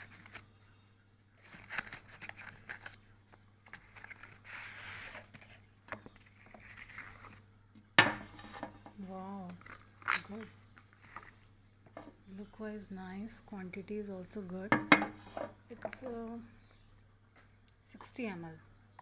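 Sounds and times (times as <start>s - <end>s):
cardboard rustling and scraping: 3.6s - 7.4s.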